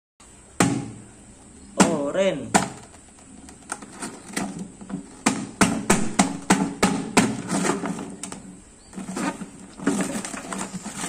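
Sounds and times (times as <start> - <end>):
foil tearing: 9.0 - 11.0.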